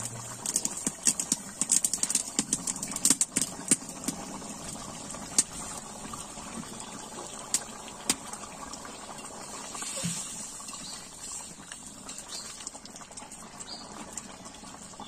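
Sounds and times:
curry bubbling in a wok: 0:00.0 - 0:15.0
sharp pops: 0:00.4 - 0:04.3.

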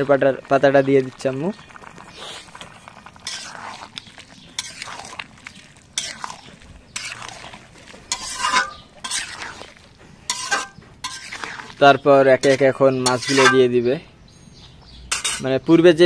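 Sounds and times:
metal spatula scraping a pan: 0:03.2 - 0:13.7, 0:15.1 - 0:15.6.

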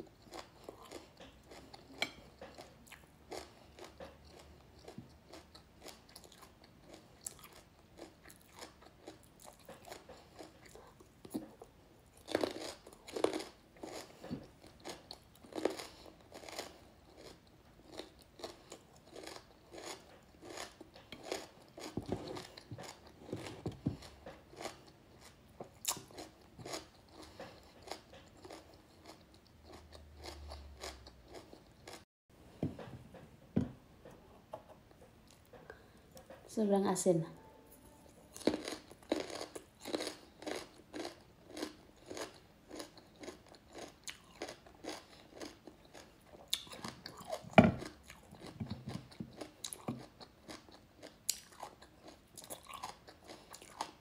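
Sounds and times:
chewing crunchy vegetables: 0:00.0 - 0:32.0, 0:37.4 - 0:54.0.

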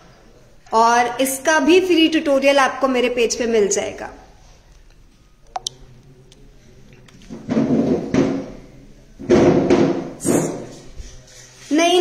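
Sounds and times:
rubbing and bumping: 0:07.3 - 0:08.6, 0:09.2 - 0:11.2.

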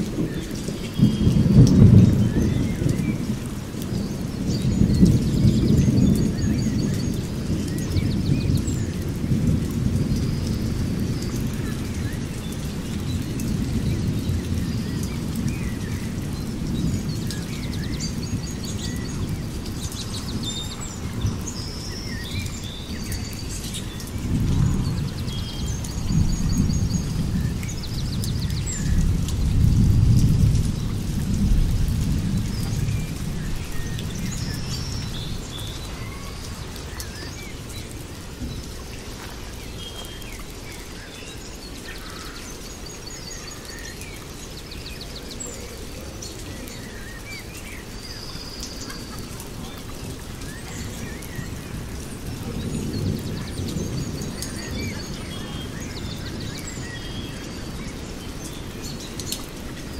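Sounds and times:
rolling thunder: 0:00.0 - 0:40.0, 0:49.0 - 0:56.5
rain falling: 0:00.0 - 0:59.9
songbirds chirping: 0:00.0 - 0:59.9.

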